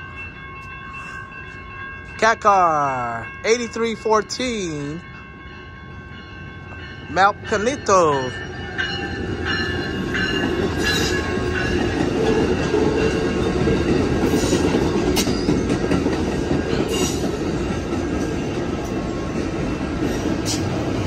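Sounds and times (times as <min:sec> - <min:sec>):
train wheels rumbling on rail: 0:06.5 - 0:21.0.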